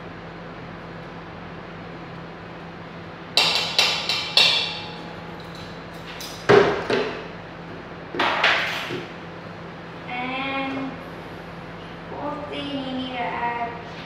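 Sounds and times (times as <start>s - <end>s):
utensils knocking on steel bowls: 3.4s - 7.1s.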